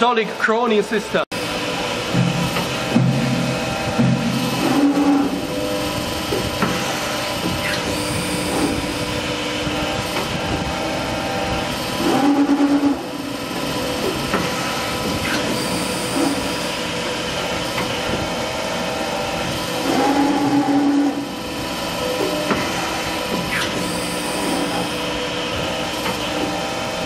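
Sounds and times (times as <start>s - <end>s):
press brake mechanical running: 6.3s - 9.4s
loud pulsing tone: 7.6s - 9.3s, 15.3s - 16.9s, 19.8s - 21.4s.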